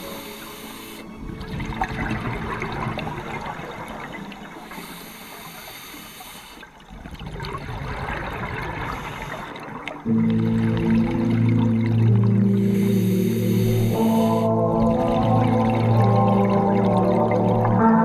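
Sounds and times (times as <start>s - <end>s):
music: 0.0s - 6.5s, 10.1s - 18.0s
underwater regulator bubbles gurgling: 0.0s - 18.0s.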